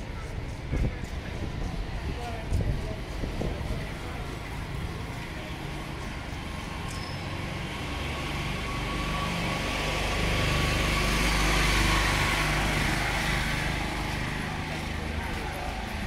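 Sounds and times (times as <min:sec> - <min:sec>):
vehicle engine passing: 0:06.4 - 0:16.0.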